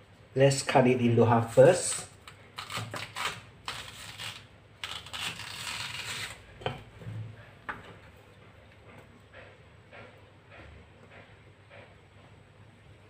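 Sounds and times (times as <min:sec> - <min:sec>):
knife scraping through yam: 0:01.8 - 0:06.5.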